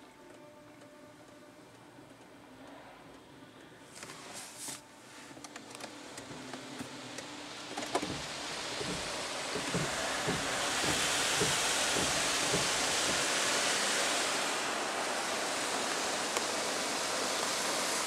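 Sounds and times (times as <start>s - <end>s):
water and brushes sweeping car: 4.0s - 5.4s, 6.2s - 18.0s.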